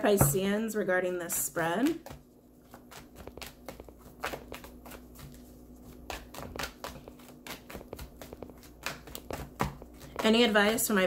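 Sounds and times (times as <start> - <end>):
cards being shuffled: 2.7 - 10.2.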